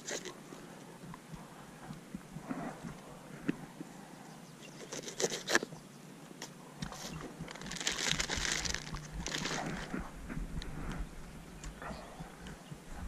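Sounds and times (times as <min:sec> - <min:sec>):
footsteps on dry grass and twigs: 0:06.9 - 0:11.2
plastic packaging crinkling: 0:07.0 - 0:10.0.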